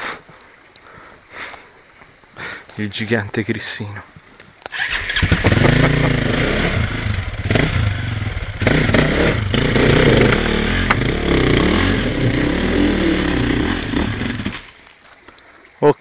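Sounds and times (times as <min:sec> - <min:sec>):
motorcycle engine revving: 0:04.7 - 0:14.8.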